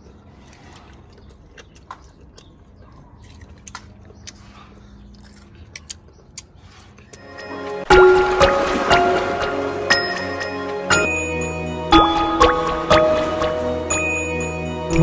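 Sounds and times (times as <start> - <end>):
crunching while chewing: 0.0 - 7.2
wet mouth clicks: 0.0 - 7.2.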